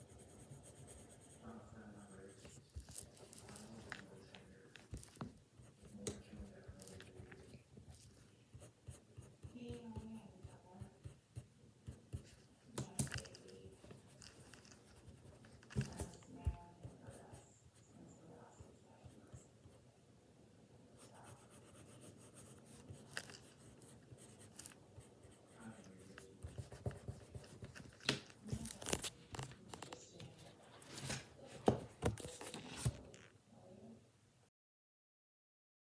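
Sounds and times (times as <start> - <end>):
pencil scratching on paper: 0.0 - 19.8, 21.0 - 28.2
paper rustle: 27.3 - 33.2.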